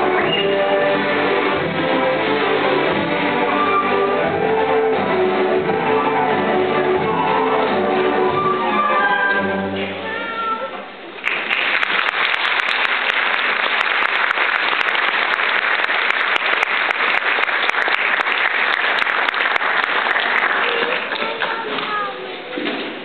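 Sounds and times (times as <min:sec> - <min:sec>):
large audience applauding: 0:11.2 - 0:22.0.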